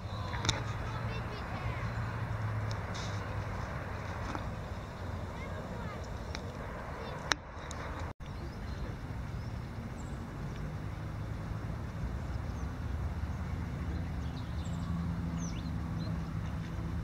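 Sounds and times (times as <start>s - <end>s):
distant road traffic rumble: 0.0s - 17.0s.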